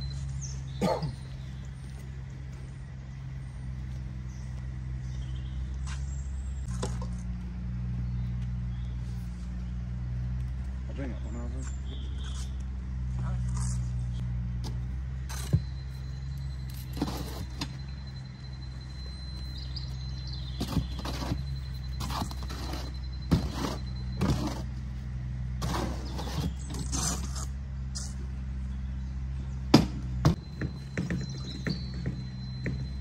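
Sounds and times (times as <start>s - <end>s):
engine humming: 0.0s - 33.0s
shovel scraping in metal wheelbarrow: 15.3s - 15.6s, 16.7s - 17.8s, 20.5s - 24.8s, 25.6s - 28.2s.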